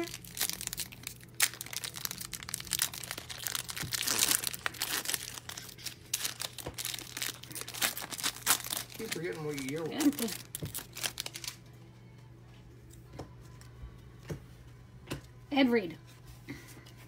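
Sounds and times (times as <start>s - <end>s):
wrapper crinkling and tearing: 0.0s - 11.7s.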